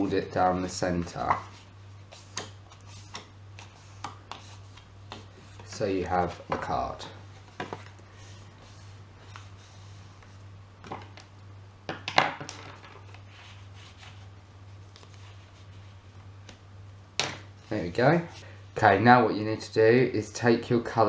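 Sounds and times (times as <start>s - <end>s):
steady low hum: 0.0s - 12.1s, 12.8s - 21.0s
paper folding and handling: 13.0s - 16.6s.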